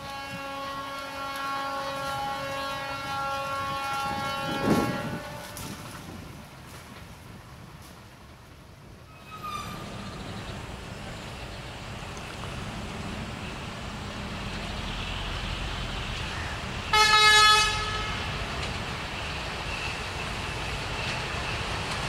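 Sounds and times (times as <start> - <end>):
locomotive horn blast: 0.0 - 6.2, 16.9 - 18.4
diesel locomotive engine rumble: 0.0 - 22.0.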